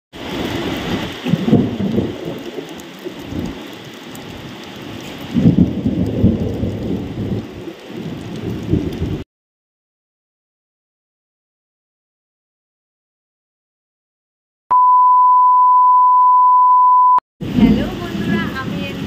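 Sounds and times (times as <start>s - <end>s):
heavy rain: 0.1s - 9.2s, 17.4s - 19.0s
rolling thunder: 0.2s - 9.2s, 17.4s - 19.0s.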